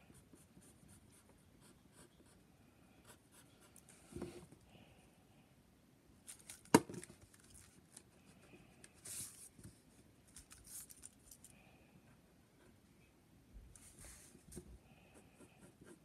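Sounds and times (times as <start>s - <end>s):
pencil scratching on paper: 15.1s - 16.0s.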